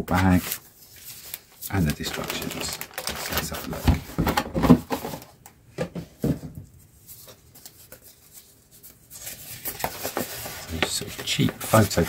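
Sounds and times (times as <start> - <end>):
paper sheet rustling: 0.1 - 5.3, 7.0 - 12.0
plastic bag crinkling: 1.7 - 3.9.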